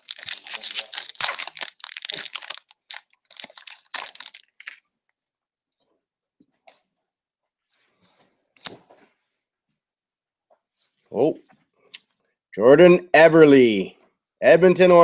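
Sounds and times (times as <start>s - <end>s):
foil wrapper crinkling and tearing: 0.0s - 4.8s.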